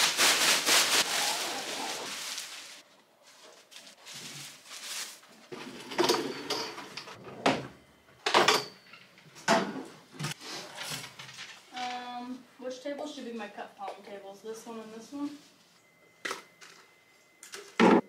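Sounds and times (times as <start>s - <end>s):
plastic tablecloth rustling: 0.0s - 5.8s.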